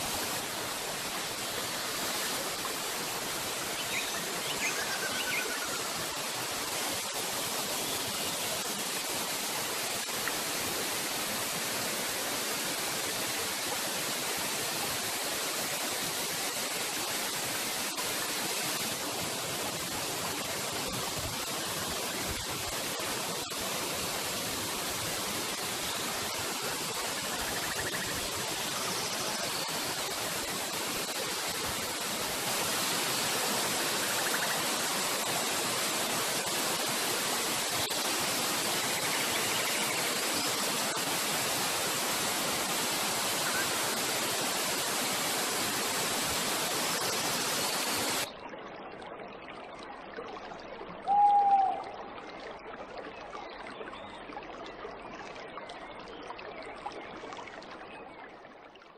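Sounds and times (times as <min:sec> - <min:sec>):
waterfall rushing: 0:00.0 - 0:48.3.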